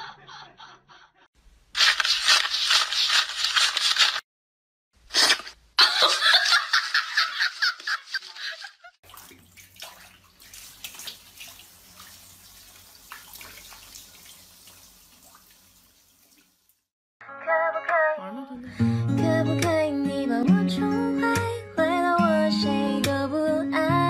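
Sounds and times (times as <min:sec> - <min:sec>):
riffling paper banknotes: 0:01.8 - 0:04.2.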